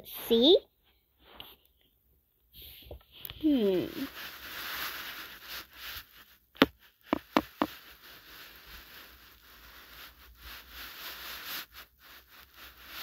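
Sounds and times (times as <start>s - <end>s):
sharp taps: 6.6s - 7.7s.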